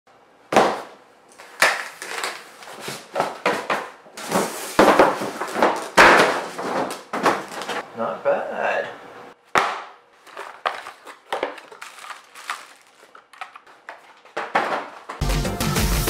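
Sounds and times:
cardboard and foam rustling: 1.9s - 7.8s, 10.2s - 15.2s.

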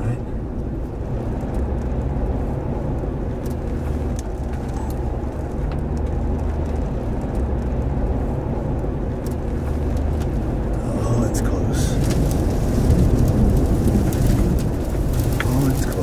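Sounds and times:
wind buffeting microphone: 11.8s - 16.0s.

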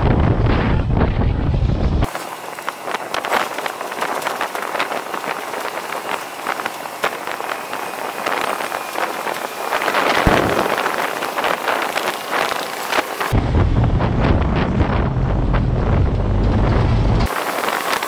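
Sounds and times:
wind buffeting microphone: 0.0s - 18.0s
small crackles: 2.1s - 13.4s.

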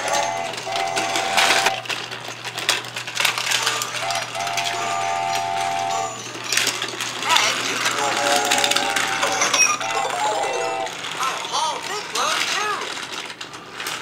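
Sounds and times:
held electronic tone: 0.0s - 1.8s, 4.0s - 6.2s
toy train motor whirring: 0.0s - 14.0s.

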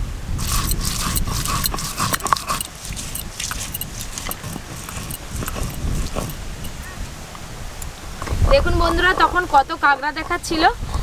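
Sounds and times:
crab shells cracking: 0.4s - 6.7s.

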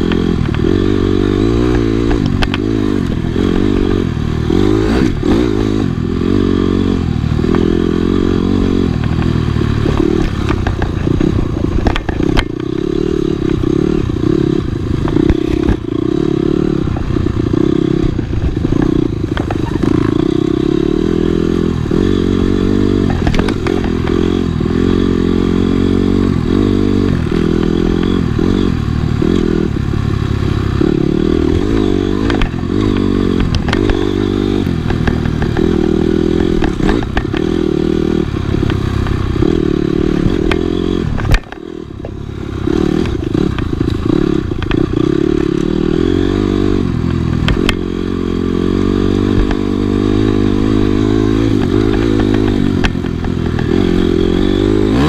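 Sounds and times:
dirt bike engine revving: 0.0s - 55.0s
bike knocks and clatter: 8.8s - 12.8s, 22.9s - 24.4s, 31.4s - 37.6s, 40.2s - 42.2s.

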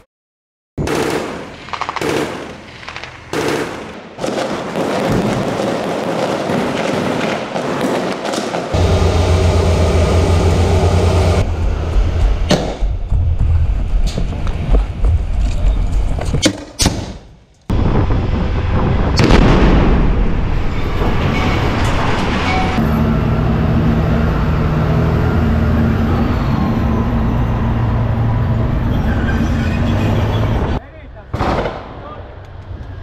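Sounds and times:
gunfire: 0.8s - 8.8s, 19.2s - 20.4s, 31.4s - 32.1s
sharp single shots: 0.8s - 8.8s
heavy low rumble: 8.7s - 16.4s.

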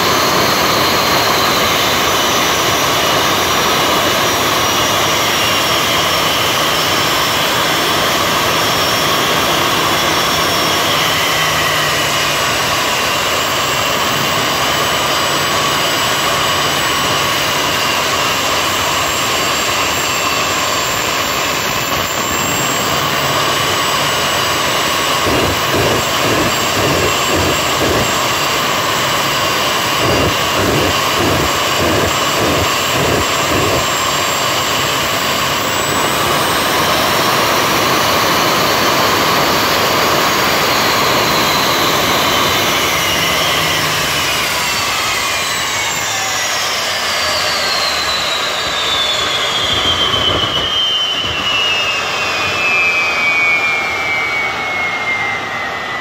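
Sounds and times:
jet turbine engine whine: 0.0s - 56.0s
rapid low pulses: 24.6s - 34.2s.

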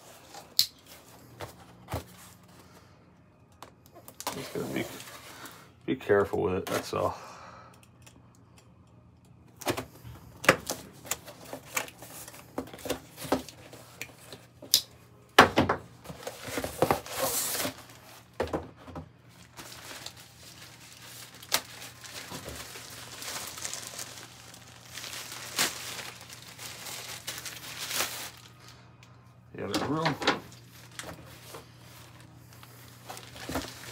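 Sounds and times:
packaging rustling and crinkling: 16.0s - 18.4s, 19.3s - 28.8s, 29.6s - 33.9s.

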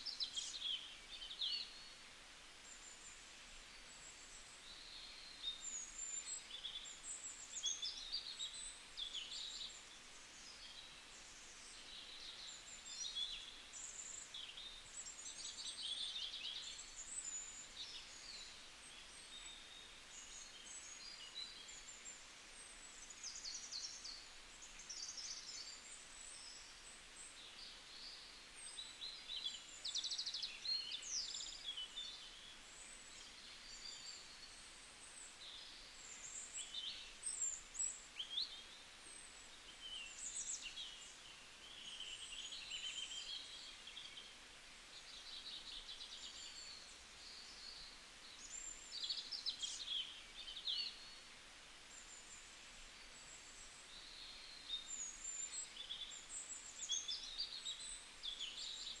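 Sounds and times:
soft hiss: 0.0s - 59.0s.

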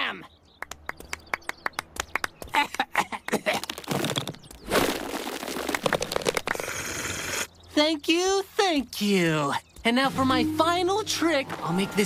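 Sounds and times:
small group clapping: 0.6s - 3.5s
small balls bouncing and clattering: 3.6s - 6.7s.

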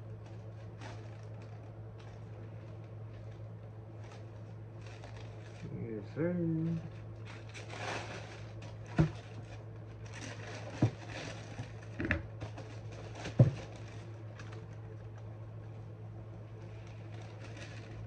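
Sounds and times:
steady low hum: 0.0s - 18.0s
tissue paper rustling: 0.1s - 5.8s, 6.9s - 11.9s, 16.6s - 18.0s.

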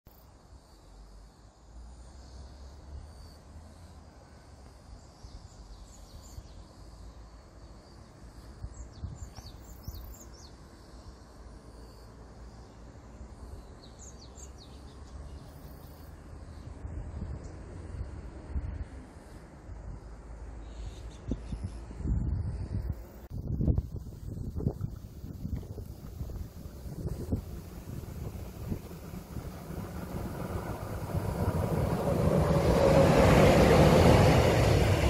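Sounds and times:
small birds chirping: 7.7s - 11.2s
steady low rumble: 22.1s - 35.0s.

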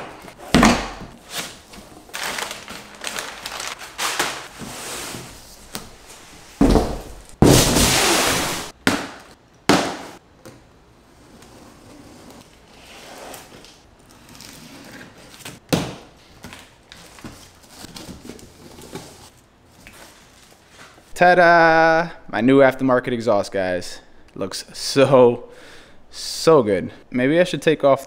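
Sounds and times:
box thudding: 0.0s - 1.5s, 6.5s - 10.2s
cardboard flaps rustling: 0.0s - 8.8s
cardboard scraping: 0.0s - 8.8s.

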